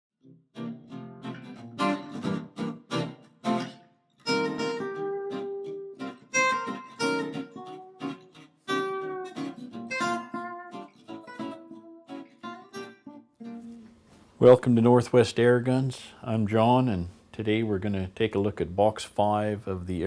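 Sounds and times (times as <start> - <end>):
acoustic guitar strummed chords: 0.2 - 14.2
picked guitar notes: 0.2 - 15.0.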